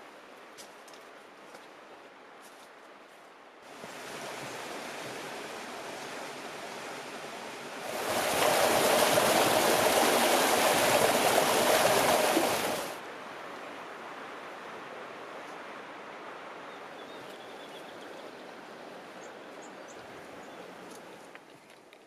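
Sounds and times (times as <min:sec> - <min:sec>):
rushing water: 0:03.6 - 0:17.0.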